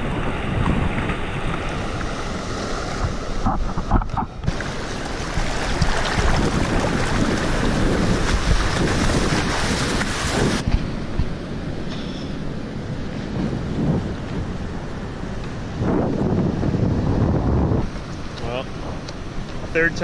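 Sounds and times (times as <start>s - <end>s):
shallow surf washing around legs: 0.0s - 11.6s
wind buffeting microphone: 0.0s - 20.0s.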